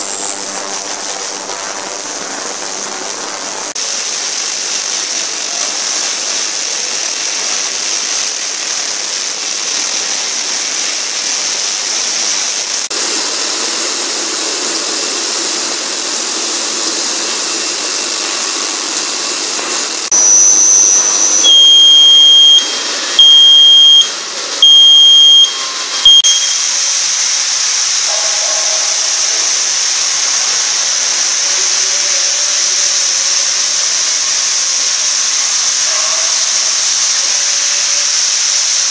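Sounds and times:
ultrasonic cleaner hiss and whine: 0:00.0 - 0:38.9
machine buzzer beeping: 0:20.1 - 0:26.7
short high beep: 0:20.1 - 0:26.8.

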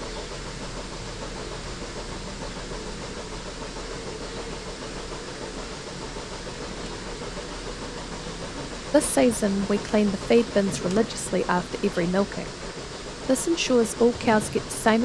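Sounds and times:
low hum: 0:00.0 - 0:15.0
machinery droning: 0:00.0 - 0:15.0.

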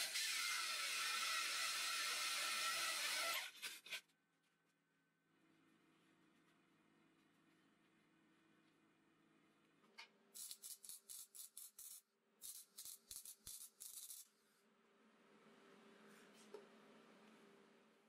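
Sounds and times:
welding arc crackling: 0:10.4 - 0:14.3.

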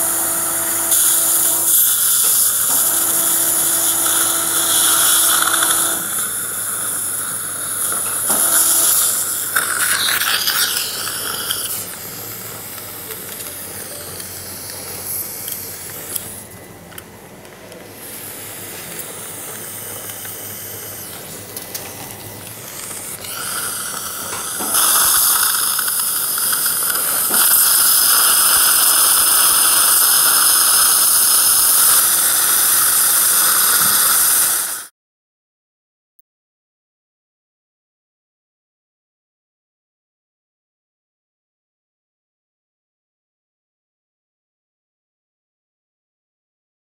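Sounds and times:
drill whine: 0:00.0 - 0:16.6, 0:18.0 - 0:34.9
surgical suction hissing: 0:00.9 - 0:16.4, 0:22.5 - 0:34.9.

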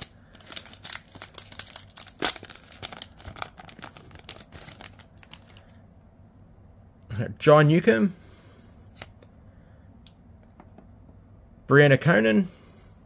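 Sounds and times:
card pack wrapper crinkling: 0:00.0 - 0:05.8.

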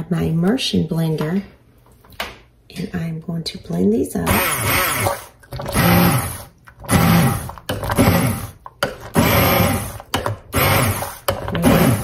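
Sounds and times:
immersion blender pureeing: 0:04.2 - 0:12.0.

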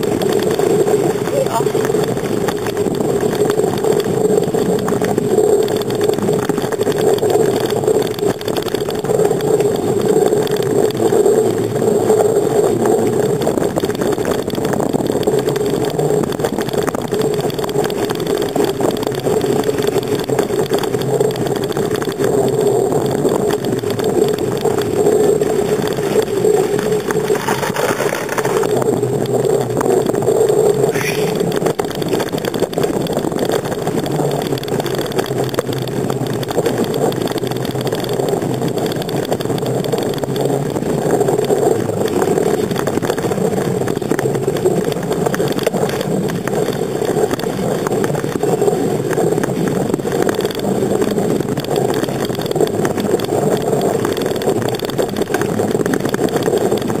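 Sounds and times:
bicycle riding wind and rolling: 0:00.0 - 0:57.0.

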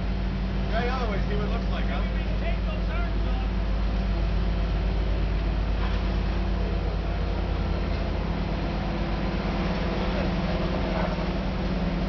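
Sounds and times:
crane engine humming: 0:00.0 - 0:12.0.

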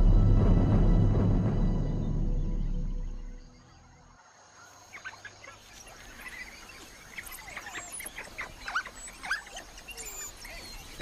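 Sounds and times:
wild dogs twittering: 0:04.2 - 0:11.0.

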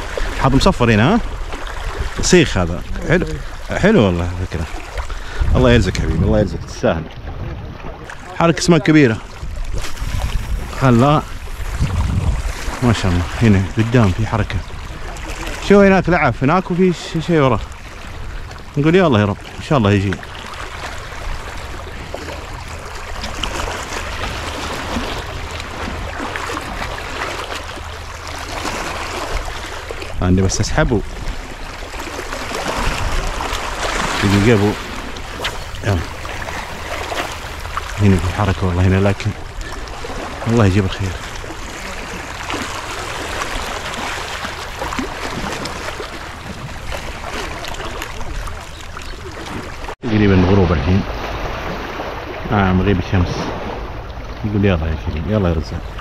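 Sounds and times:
sea water washing on shore: 0:00.0 - 0:56.0
low rumble: 0:02.2 - 0:07.9, 0:09.3 - 0:13.8, 0:50.0 - 0:56.0.

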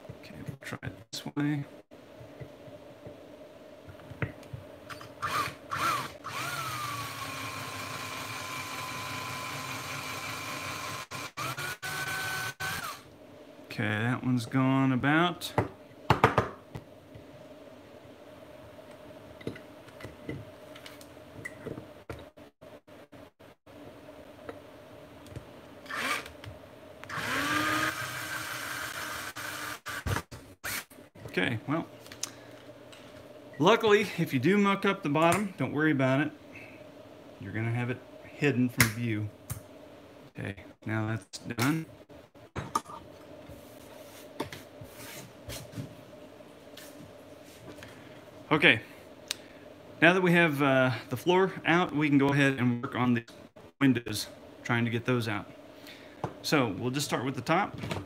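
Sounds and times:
power drill whining: 0:05.2 - 0:13.0, 0:25.9 - 0:26.3, 0:27.1 - 0:30.2.

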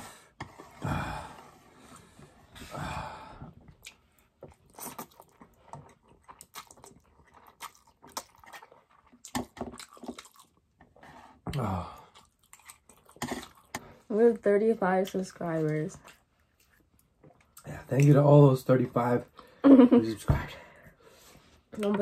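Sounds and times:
clicky chewing: 0:03.7 - 0:11.0.

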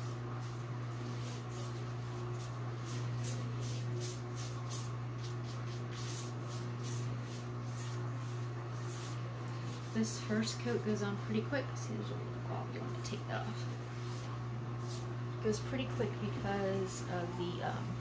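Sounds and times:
paintbrush swishing: 0:00.0 - 0:11.0, 0:13.8 - 0:15.2
steady low hum: 0:00.0 - 0:18.0.

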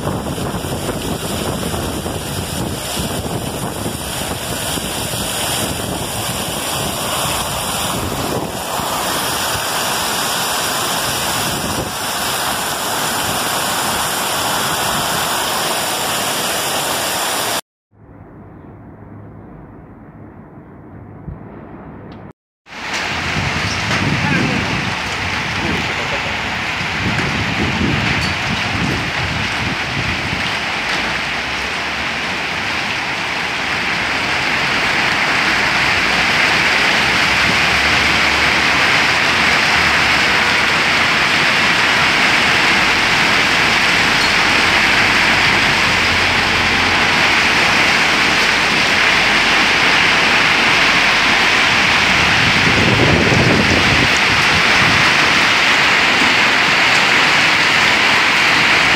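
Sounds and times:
heavy rain pouring: 0:00.0 - 0:17.6, 0:22.7 - 0:58.9
low thunder rumble: 0:18.0 - 0:22.3.

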